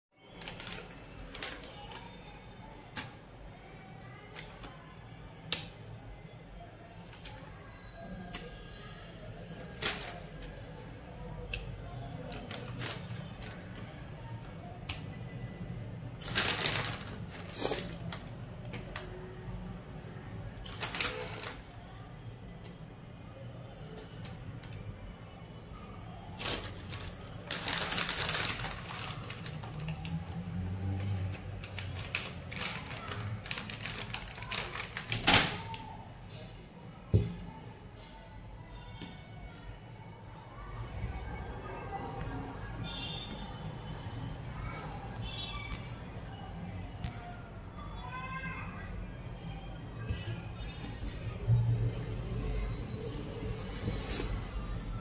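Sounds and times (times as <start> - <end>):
balloons rustling and tapping: 26.4 - 30.2, 31.5 - 35.9
rubber balloons rustling: 26.4 - 30.2.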